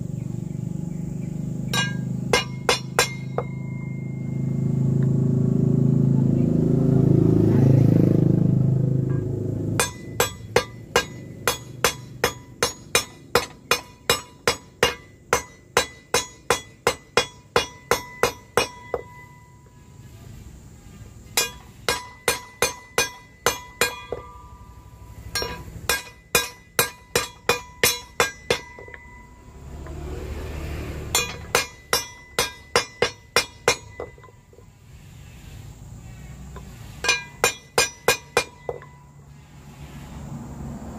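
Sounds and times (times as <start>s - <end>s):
hammer striking metal blade: 1.7s - 4.4s, 9.0s - 19.4s, 21.4s - 29.3s, 30.9s - 34.4s, 37.0s - 39.1s.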